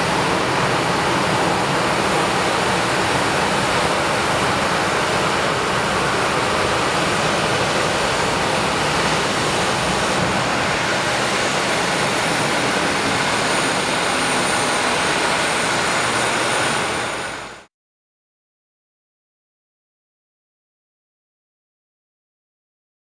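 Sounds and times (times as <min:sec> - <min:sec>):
steady rushing noise with whine: 0:00.0 - 0:17.7.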